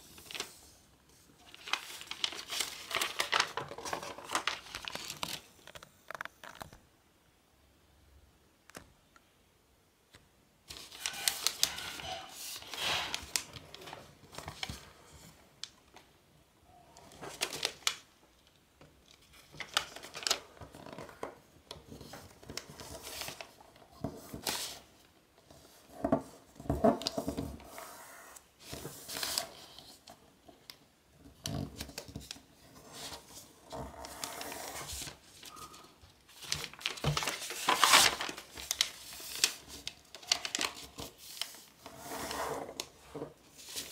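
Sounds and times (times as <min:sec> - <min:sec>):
paper rustling and crinkling: 0:00.0 - 0:06.8, 0:10.7 - 0:15.7, 0:17.0 - 0:18.1, 0:19.0 - 0:43.9.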